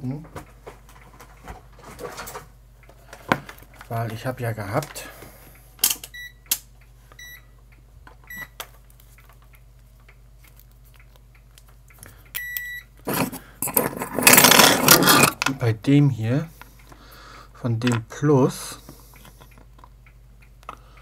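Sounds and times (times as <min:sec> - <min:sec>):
continuity tester beeping: 0:06.1 - 0:06.5, 0:07.2 - 0:07.6, 0:08.3 - 0:08.6, 0:12.4 - 0:13.0
circuit board rustling and scraping: 0:13.1 - 0:15.6.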